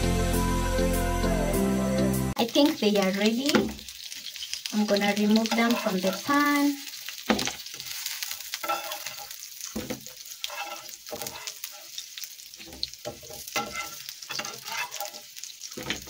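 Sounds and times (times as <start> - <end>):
chicken sizzling in oil: 2.3 - 16.0
spatula scraping pan: 5.3 - 6.3, 7.3 - 12.0, 12.6 - 16.0.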